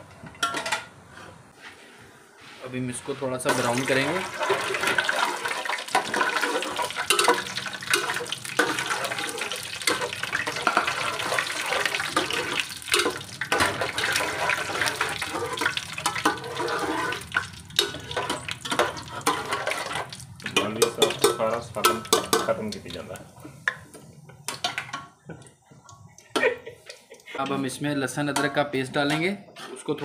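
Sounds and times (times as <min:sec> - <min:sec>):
spices sizzling in hot oil: 0:03.5 - 0:24.8
spatula scraping against pot: 0:06.0 - 0:22.5, 0:29.1 - 0:30.0.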